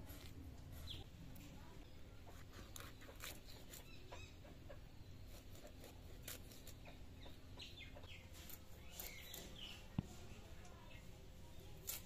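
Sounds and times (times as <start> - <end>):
hen clucking: 2.2 - 8.5.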